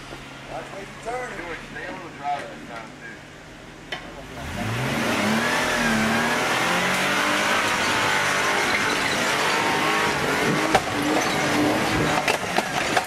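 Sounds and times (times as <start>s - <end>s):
engine revving hard: 4.2s - 13.0s.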